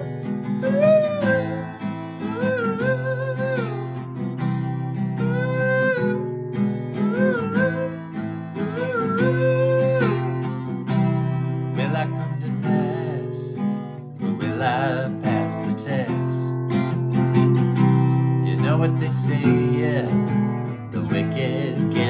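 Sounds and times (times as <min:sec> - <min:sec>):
acoustic guitar strummed: 0:00.0 - 0:22.0
man singing: 0:11.7 - 0:16.6, 0:18.4 - 0:22.0.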